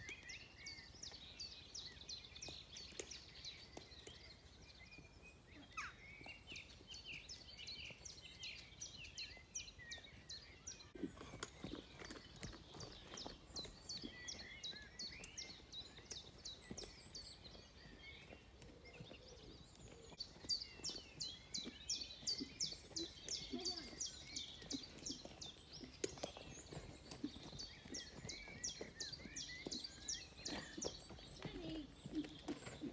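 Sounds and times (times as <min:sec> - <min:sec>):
songbirds chirping: 0:00.0 - 0:32.9.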